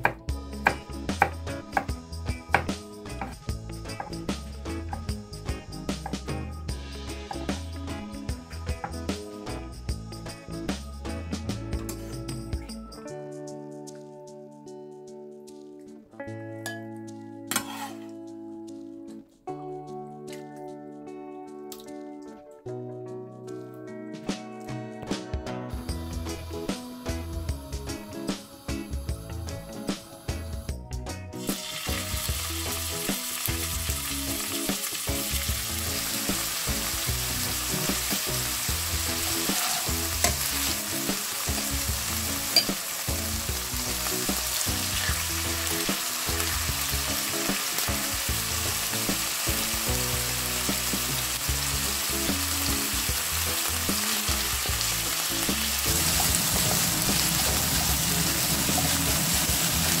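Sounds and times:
utensils clicking on a pan: 17.5 - 18.2, 39.3 - 40.6, 42.5 - 42.9
meat sizzling in oil: 31.4 - 60.0.

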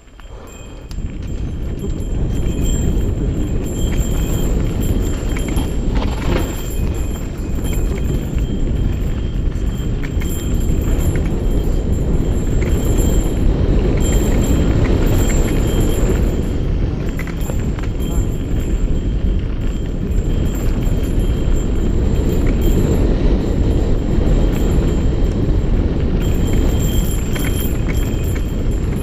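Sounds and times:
tyres rolling on gravel: 0.0 - 23.4
wind rush on microphone: 0.0 - 29.0
bike rattling over rocks: 1.0 - 21.4.

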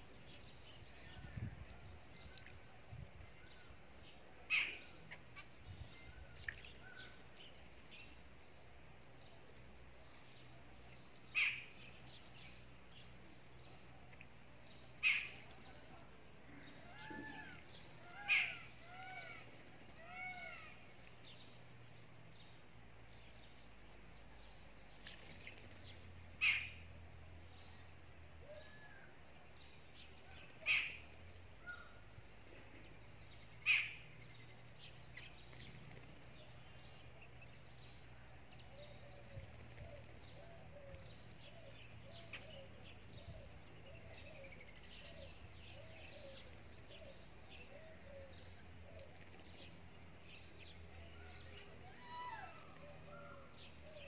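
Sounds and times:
birds chirping: 0.0 - 54.0
loud bird calls: 3.6 - 7.4, 13.2 - 22.2, 24.6 - 27.4, 30.1 - 54.0.

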